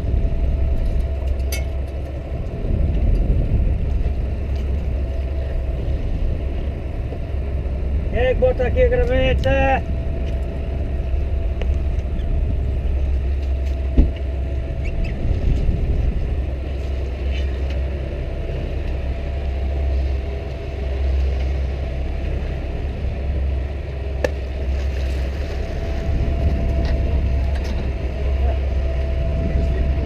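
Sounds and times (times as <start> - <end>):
boat engine idling: 0.0 - 30.0.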